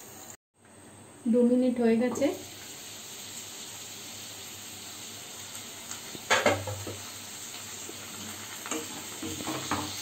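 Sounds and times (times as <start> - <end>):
food sizzling in oil: 0.0 - 0.4, 1.2 - 10.0
pan lid clank: 6.3 - 7.0.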